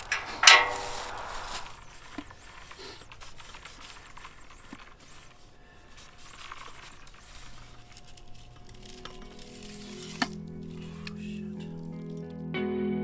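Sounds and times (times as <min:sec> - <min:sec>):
metal antenna clicks and knocks: 0:00.0 - 0:05.2
low outdoor hiss: 0:00.0 - 0:12.2.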